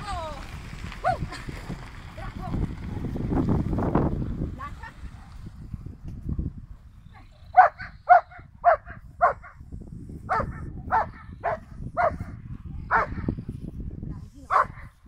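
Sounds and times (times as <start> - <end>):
large dog barking: 7.5 - 9.6, 10.3 - 13.3, 14.5 - 15.0.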